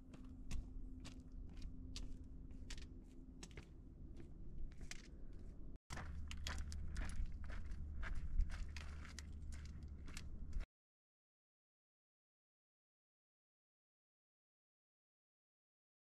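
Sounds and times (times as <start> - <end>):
footsteps crunching on stony trail: 0.1 - 10.7.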